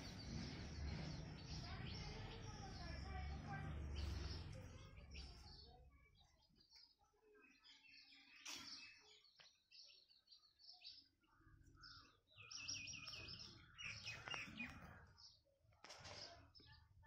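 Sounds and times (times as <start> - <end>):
birds chirping: 0.0 - 17.0
bird trill: 10.7 - 15.0.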